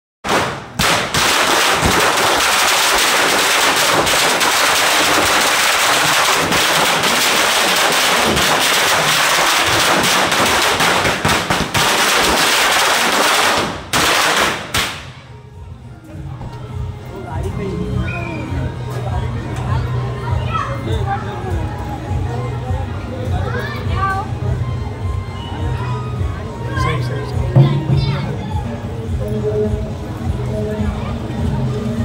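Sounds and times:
firecrackers crackling: 0:00.2 - 0:15.3.

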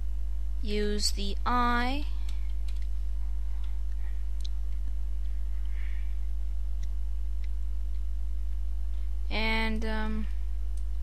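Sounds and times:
low electrical hum: 0:00.0 - 0:11.0
keyboard and mouse clicks: 0:02.2 - 0:02.9.

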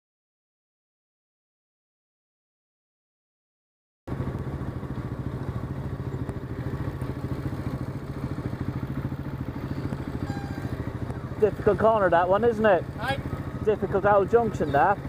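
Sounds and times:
motorcycle engine at low revs: 0:04.1 - 0:15.0.

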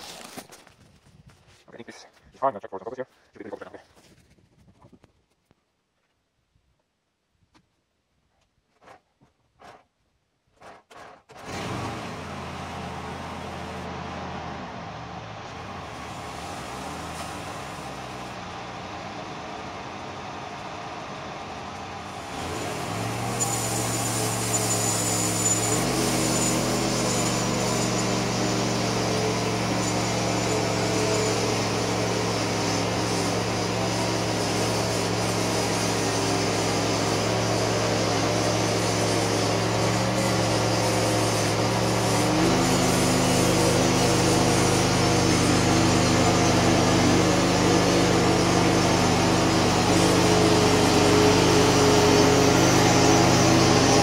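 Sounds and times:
sawmill engine running: 0:10.5 - 0:54.0
saw blade hissing through wood: 0:22.1 - 0:54.0.

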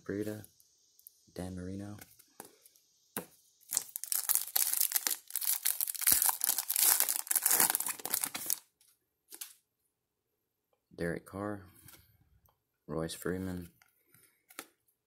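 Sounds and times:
foil wrapper crinkling and tearing: 0:03.7 - 0:08.7.

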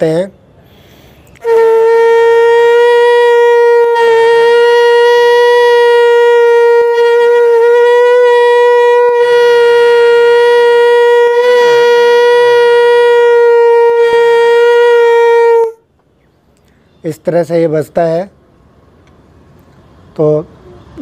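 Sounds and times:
conch shell blown: 0:00.9 - 0:16.0.

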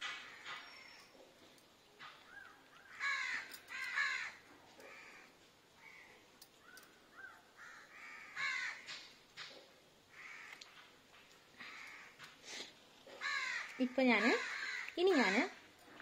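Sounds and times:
crows cawing: 0:02.3 - 0:09.1, 0:10.1 - 0:10.8, 0:11.6 - 0:12.4, 0:13.2 - 0:15.6.

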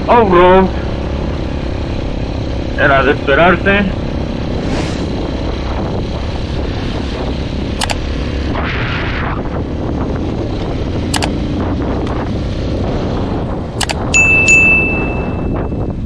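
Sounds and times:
motorcycle engine: 0:00.0 - 0:16.0
wind noise: 0:00.0 - 0:16.0
short rushing hiss: 0:04.6 - 0:05.1
sharp clicks: 0:07.8 - 0:08.0, 0:11.1 - 0:11.4, 0:13.8 - 0:14.1.

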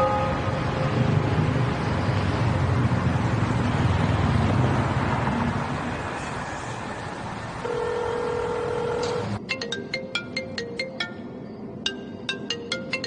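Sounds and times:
car engine and tyre rumble: 0:00.0 - 0:09.4
phone ringing tone: 0:07.6 - 0:11.2.

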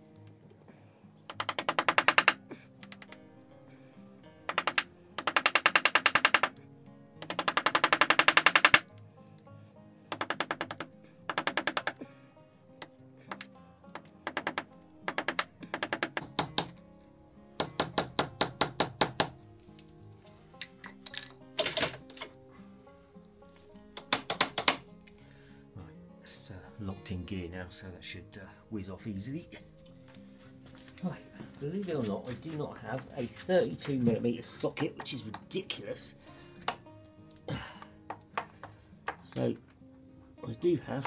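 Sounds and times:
socket ratchet clicking: 0:01.3 - 0:03.2, 0:04.5 - 0:06.6, 0:07.2 - 0:08.9, 0:10.1 - 0:12.0, 0:13.3 - 0:16.7.

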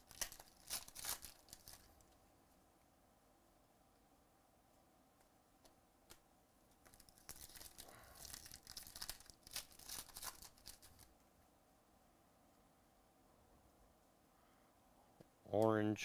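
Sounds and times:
foil wrapper tearing: 0:00.0 - 0:02.0, 0:06.9 - 0:11.1.

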